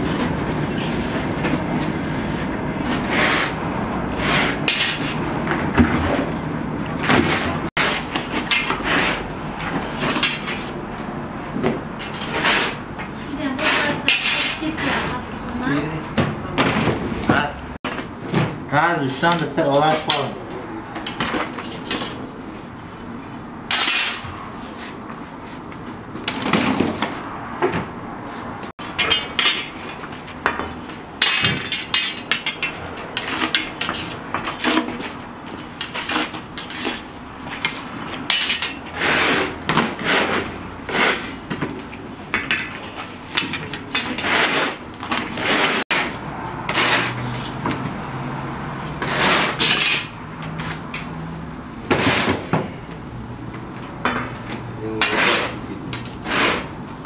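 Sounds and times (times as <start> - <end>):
metal hooks clanking and scraping: 42.3 - 44.3.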